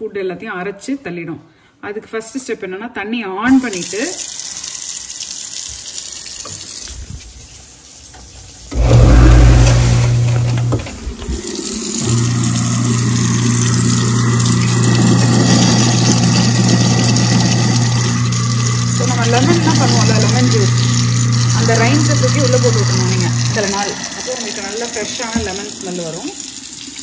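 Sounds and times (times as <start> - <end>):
tap running into sink: 5.6 - 7.2, 8.1 - 27.0
garbage disposal motor humming: 8.6 - 27.0.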